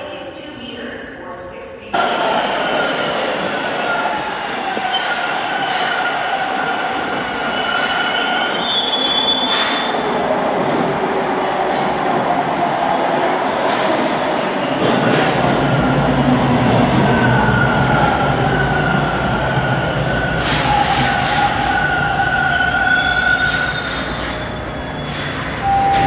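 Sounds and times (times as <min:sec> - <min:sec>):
steel wheels on rail: 0:02.0 - 0:26.0.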